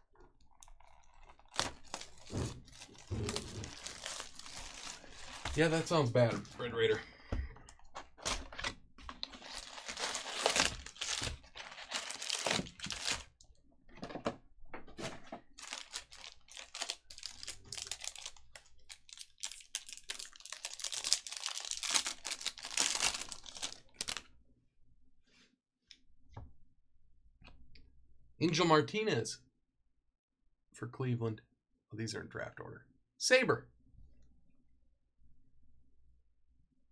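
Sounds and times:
wrappers tearing and crinkling: 0.5 - 6.6, 8.1 - 13.4, 15.6 - 24.2.

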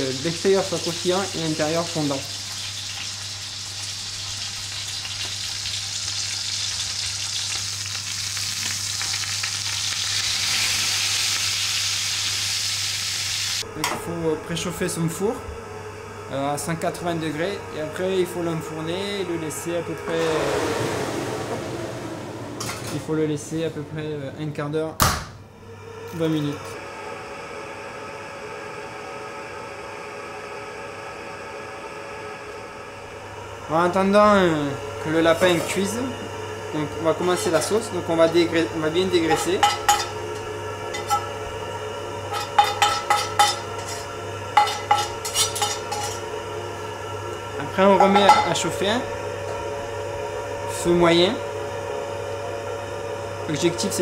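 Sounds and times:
meat sizzling in hot oil: 0.0 - 13.6
fan whirring: 0.0 - 54.0.

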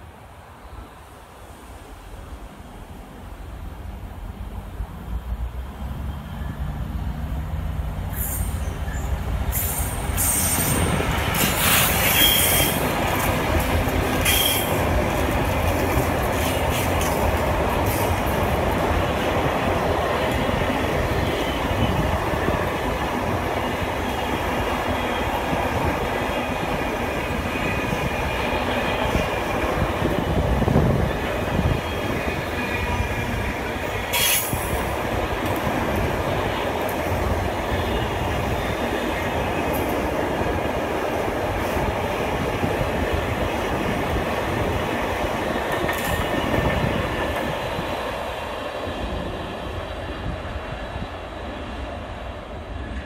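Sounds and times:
train wagons rumbling and clattering: 3.2 - 53.0
train wheel squeals: 8.1 - 13.0, 14.2 - 14.8, 31.5 - 34.8.

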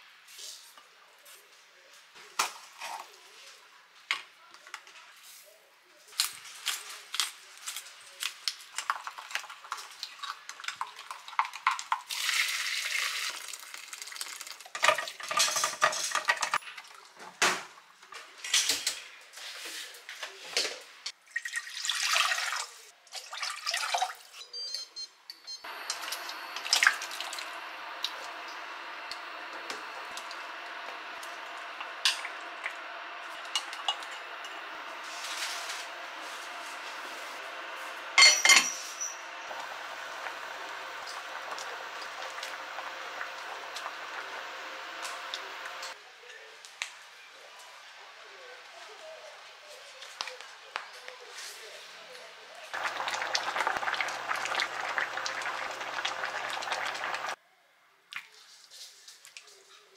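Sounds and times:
water splashing into a sieve: 21.3 - 24.3
steady even noise: 25.7 - 46.0
spoon clinking in a glass jug: 38.2 - 39.2.

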